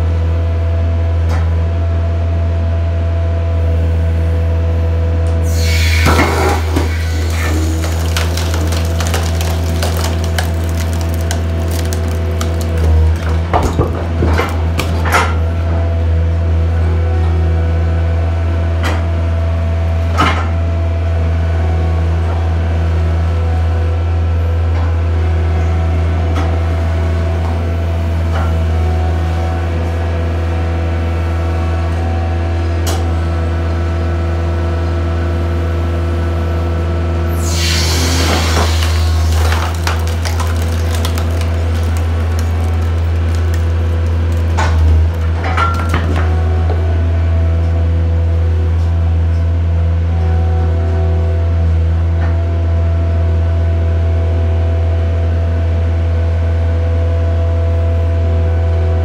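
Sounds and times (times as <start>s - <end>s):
skid steer engine running: 0.0s - 59.0s
wood cracking and splintering: 5.5s - 15.5s, 37.4s - 46.8s.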